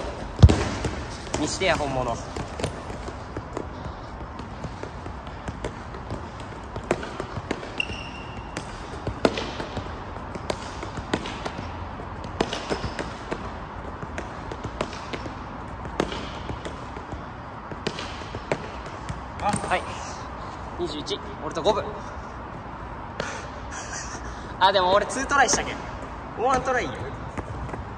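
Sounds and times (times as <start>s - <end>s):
football kicked with feet: 0.0s - 19.8s.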